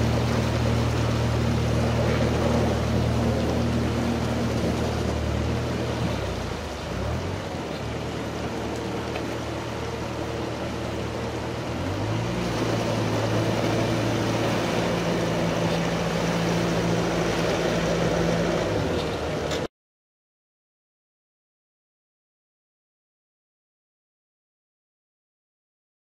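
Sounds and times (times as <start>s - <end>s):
diesel engine revving: 0.0s - 19.7s
rushing creek water: 0.0s - 19.7s.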